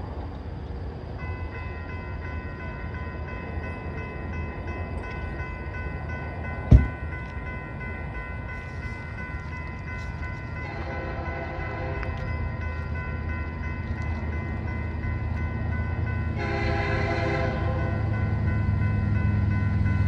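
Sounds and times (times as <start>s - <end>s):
railroad crossing bell ringing: 0.8s - 20.0s
sharp thump: 6.7s - 7.0s.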